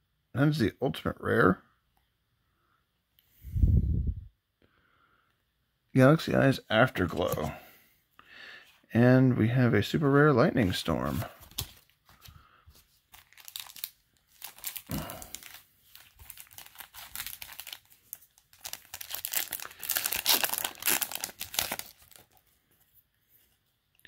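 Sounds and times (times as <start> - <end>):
foil pack crinkling and tearing: 13.1 - 22.5.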